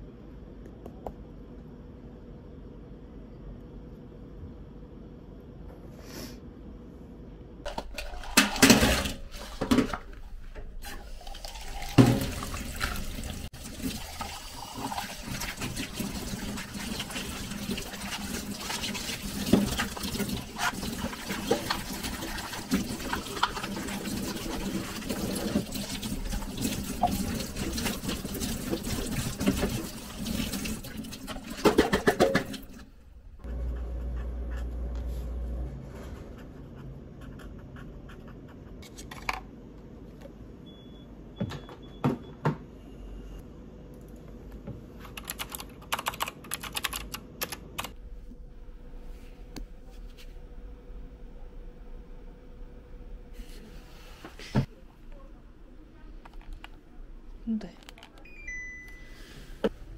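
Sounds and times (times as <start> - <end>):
tap water running into sink: 10.8 - 32.7.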